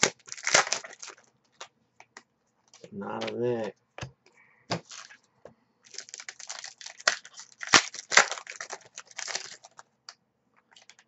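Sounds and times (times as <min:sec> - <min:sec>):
foil wrapper crinkling: 0:00.0 - 0:01.7, 0:04.8 - 0:05.2, 0:05.9 - 0:09.9, 0:10.7 - 0:11.0.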